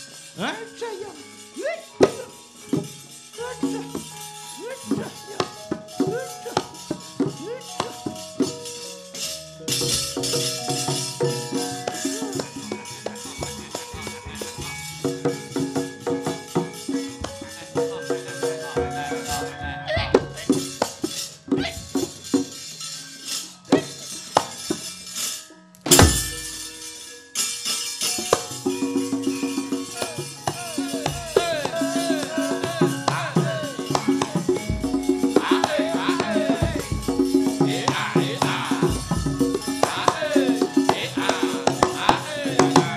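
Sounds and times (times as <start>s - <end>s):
metallophone notes: 0.0s - 42.9s
metal plates clashing: 23.4s - 27.2s.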